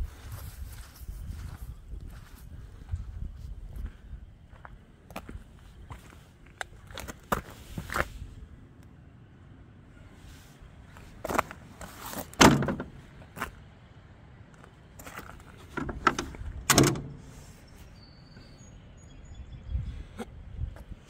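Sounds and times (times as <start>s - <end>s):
sharp knocks and clunks: 12.4s - 13.0s, 15.7s - 17.4s.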